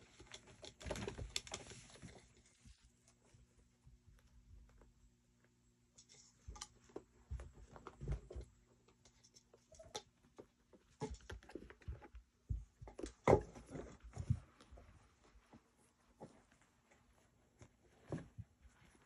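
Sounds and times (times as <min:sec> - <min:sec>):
kittens thumping on carpet: 0:06.5 - 0:08.9, 0:10.8 - 0:19.0.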